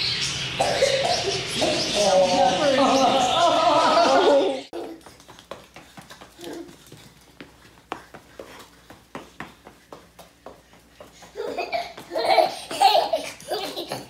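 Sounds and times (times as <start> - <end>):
toddler laughing: 0.6 - 5.2, 11.2 - 14.0.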